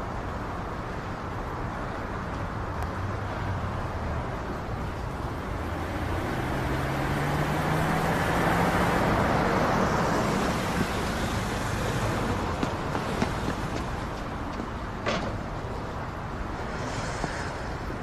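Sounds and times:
hum of passing cars: 0.0 - 18.0
vehicle passing close: 4.6 - 14.2.

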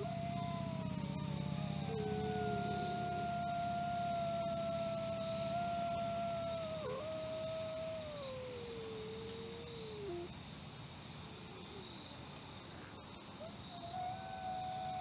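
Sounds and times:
wolf howling: 0.0 - 10.3, 13.7 - 15.0
high insect drone: 0.0 - 15.0.

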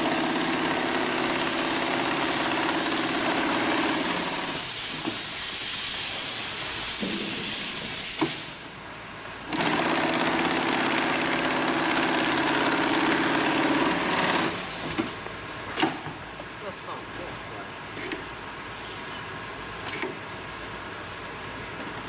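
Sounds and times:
industrial sewing machine running: 0.0 - 4.6, 9.4 - 15.1.

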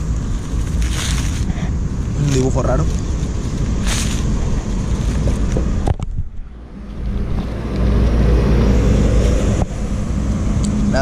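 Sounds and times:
low rumble: 0.0 - 11.0
paper sheets rustling: 0.3 - 5.6.

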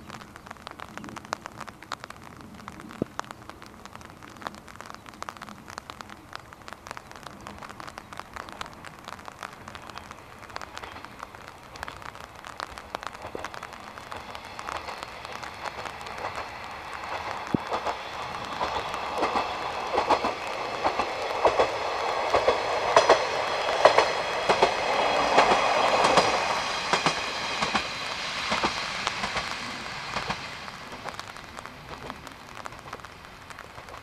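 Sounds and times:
raindrops striking a surface: 0.0 - 34.0
distant train approaching: 7.9 - 34.0.

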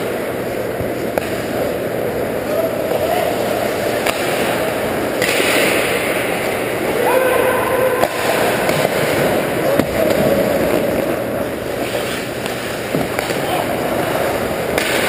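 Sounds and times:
hockey sticks and puck clacking: 0.0 - 6.9, 8.0 - 15.0
player shouting: 6.9 - 8.6
skates scraping on ice: 8.0 - 15.0.

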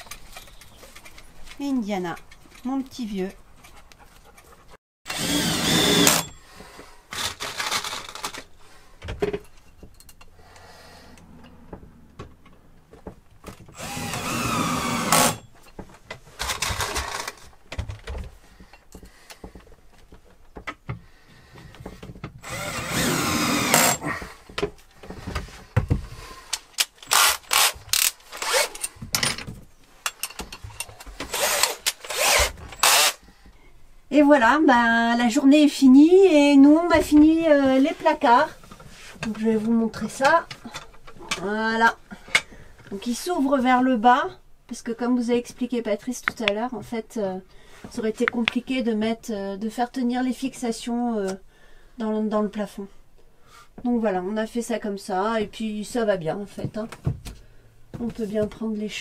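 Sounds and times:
cordless drill motor whine: 5.1 - 6.3, 13.8 - 15.4, 22.4 - 24.0, 31.3 - 33.2.

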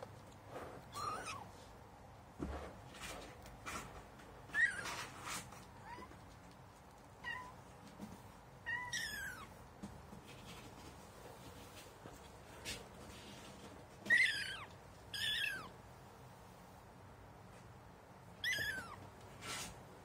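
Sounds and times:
kitten meowing: 0.9 - 1.5, 8.7 - 9.5, 14.1 - 15.7, 18.4 - 19.0.

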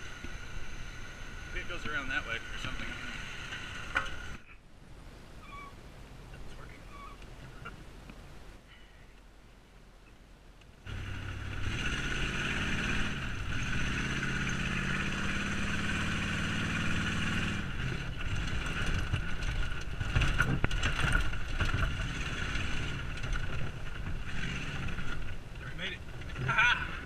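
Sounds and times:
pickup truck engine running: 10.8 - 27.0
knocks and rattles: 17.8 - 26.8.

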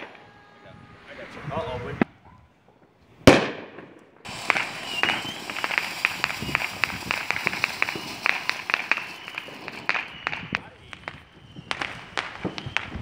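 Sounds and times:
firework bang: 0.0 - 13.0
firework hissing and crackling: 4.2 - 13.0.

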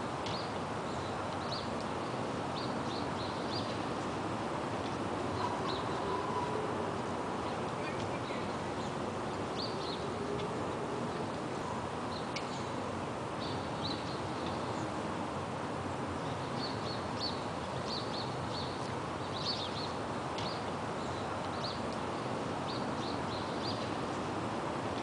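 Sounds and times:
city noise rush: 0.0 - 25.0
small birds chirping: 7.4 - 10.2, 16.2 - 24.0.

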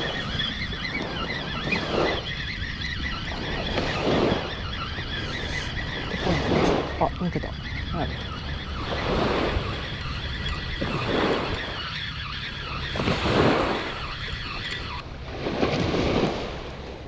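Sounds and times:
wind on microphone: 0.0 - 17.0
small waves washing ashore: 5.2 - 10.1, 12.9 - 17.0.

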